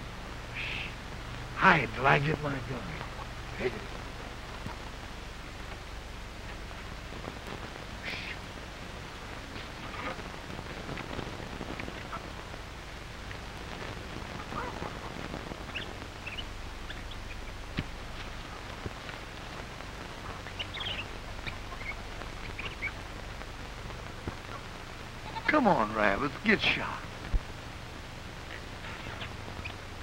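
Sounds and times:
faint low hum: 0:00.0 - 0:30.0
film soundtrack hiss: 0:00.0 - 0:30.0
faint chirps and clicks: 0:14.6 - 0:19.4, 0:20.3 - 0:25.4.

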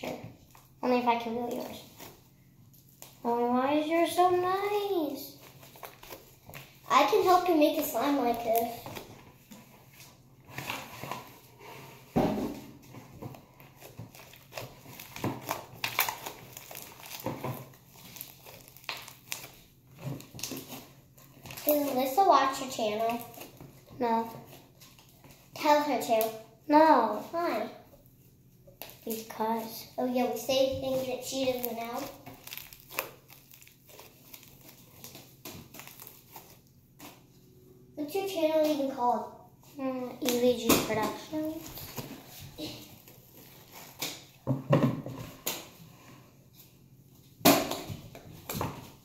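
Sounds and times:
slime popping and crackling: 0:13.8 - 0:23.6, 0:28.8 - 0:37.2.

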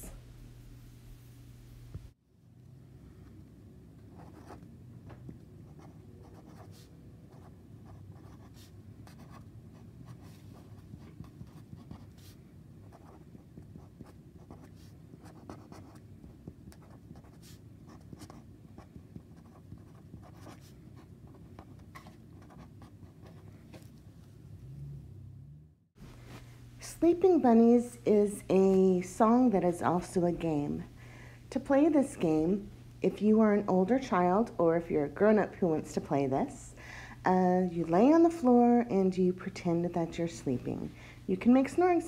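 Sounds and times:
low steady hum: 0:00.0 - 0:42.0
felt-tip pen scratching on paper: 0:05.6 - 0:23.5.

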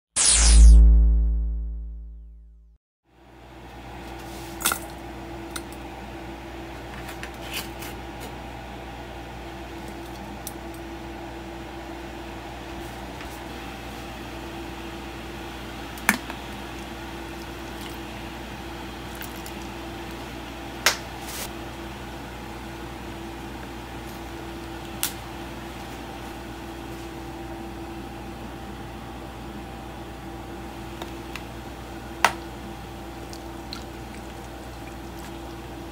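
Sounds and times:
appliance humming: 0:03.1 - 0:35.9.

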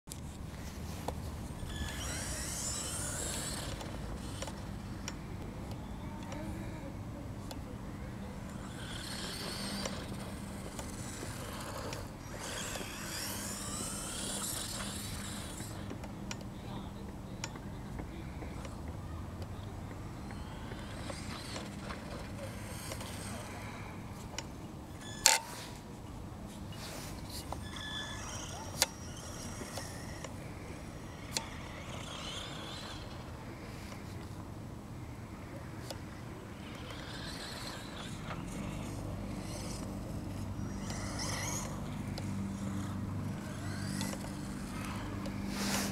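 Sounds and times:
toy truck motor whining: 0:01.4 - 0:05.2, 0:08.2 - 0:16.8, 0:19.8 - 0:24.4, 0:25.0 - 0:25.8, 0:26.8 - 0:34.2, 0:35.8 - 0:45.9.

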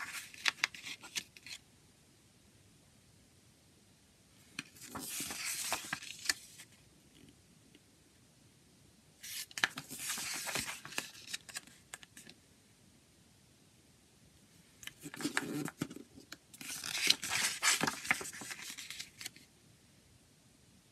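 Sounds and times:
booklet pages turning: 0:00.0 - 0:01.6, 0:04.5 - 0:06.8, 0:09.2 - 0:12.4, 0:14.8 - 0:19.5.

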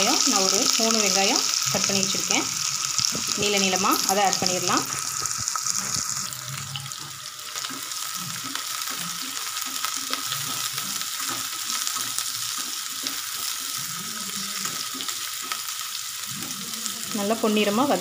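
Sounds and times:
onions sizzling in oil: 0:00.0 - 0:18.0
spatula scraping a pan: 0:04.8 - 0:15.6.

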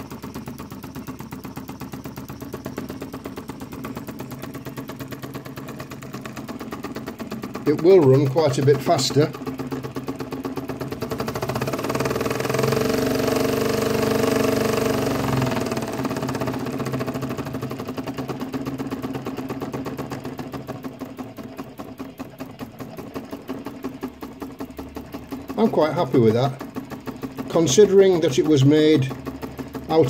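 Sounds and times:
small model engine running: 0:00.0 - 0:30.0.

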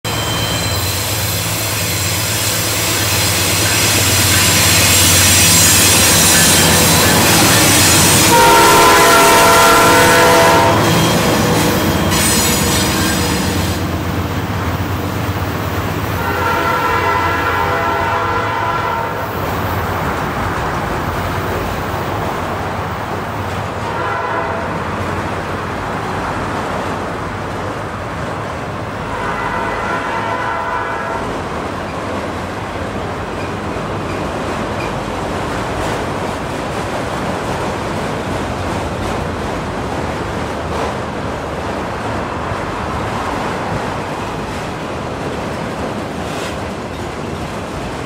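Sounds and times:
freight train rumbling past: 0:00.0 - 0:48.0
train horn: 0:00.4 - 0:13.9, 0:16.2 - 0:19.3, 0:23.8 - 0:24.9, 0:29.0 - 0:31.4.

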